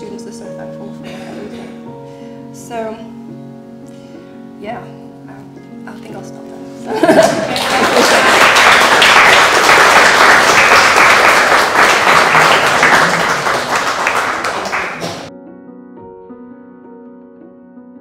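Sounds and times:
soft background music: 0.0s - 8.8s
audience applauding: 7.0s - 15.3s.

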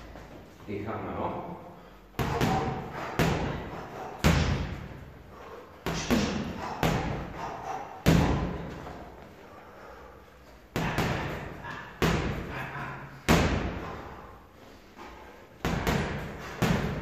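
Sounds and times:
boxing gloves punching heavy bag: 2.2s - 5.1s, 5.8s - 9.1s, 10.7s - 14.2s, 15.6s - 17.0s.

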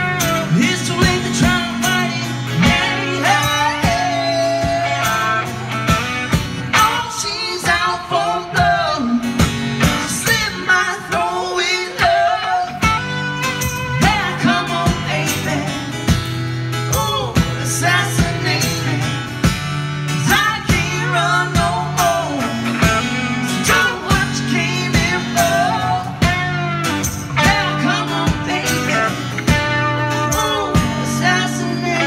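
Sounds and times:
person singing: 0.0s - 5.9s, 13.8s - 15.8s, 20.3s - 32.0s
live blues-rock band: 0.0s - 32.0s.

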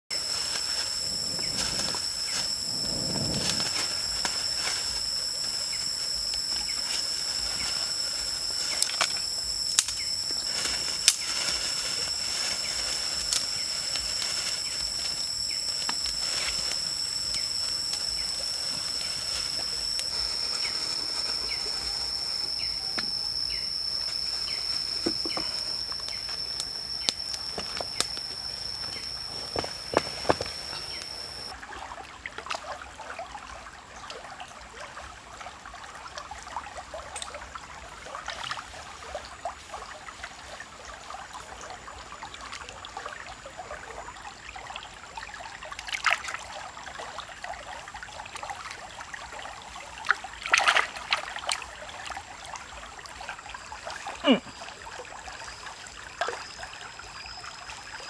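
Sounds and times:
insect drone: 0.0s - 31.6s, 35.8s - 58.0s
campfire crackling: 0.2s - 31.5s.

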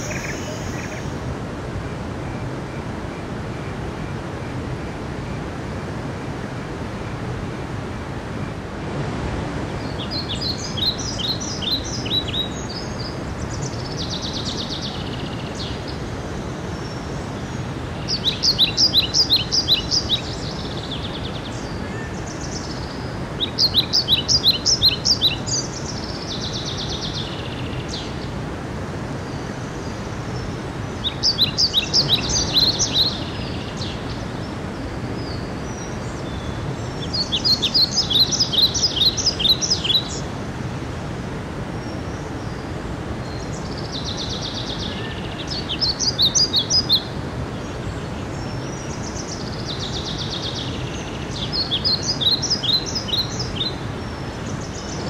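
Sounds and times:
songbird singing high notes: 0.0s - 1.2s
stream rushing over rocks: 0.0s - 55.0s.

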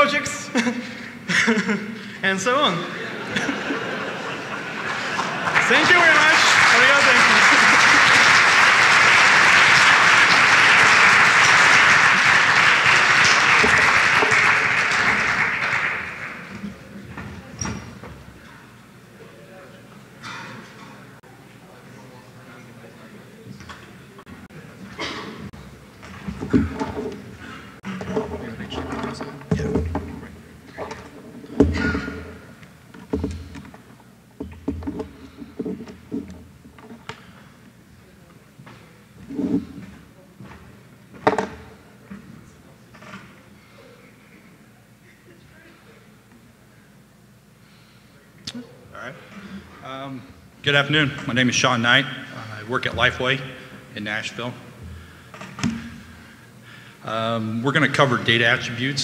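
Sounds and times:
large audience applauding: 4.1s - 16.9s.

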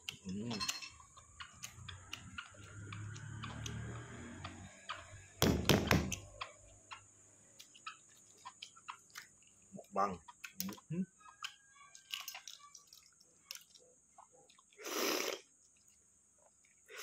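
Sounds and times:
egg knocking on table: 5.4s - 6.2s.

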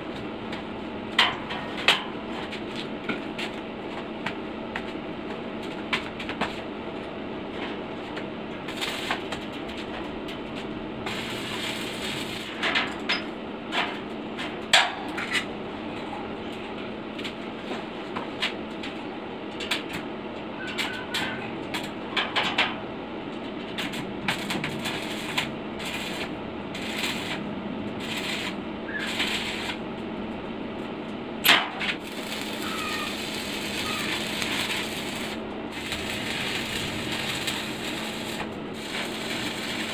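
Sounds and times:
steady hum: 6.3s - 20.4s, 21.8s - 39.9s
welding arc crackling: 8.7s - 9.5s, 11.0s - 12.6s, 23.8s - 30.4s, 31.8s - 39.9s.

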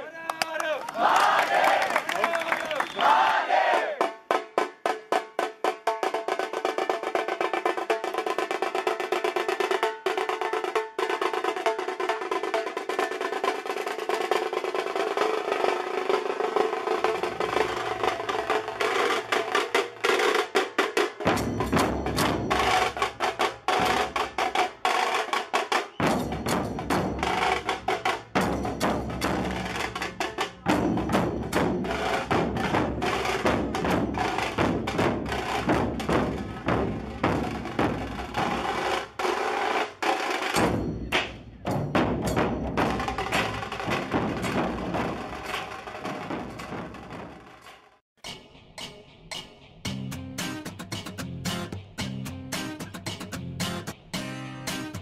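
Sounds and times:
deep barrel drum beats: 4.0s - 47.6s, 48.2s - 55.0s
fast drum roll on small drums: 4.7s - 48.0s.

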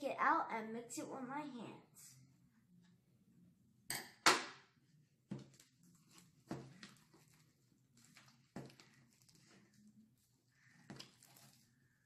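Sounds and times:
slime being scooped by hand: 5.4s - 11.8s.

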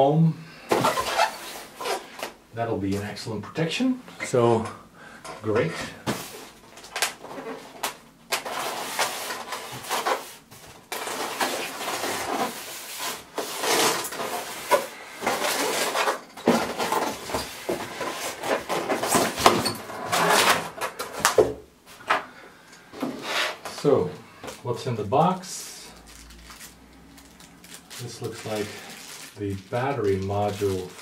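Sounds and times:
foam lid scraping and squeaking: 0.7s - 2.1s, 8.4s - 20.9s.

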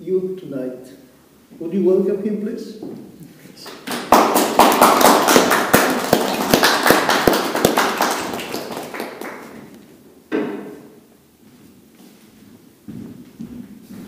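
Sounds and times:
small audience applauding: 3.6s - 9.9s.

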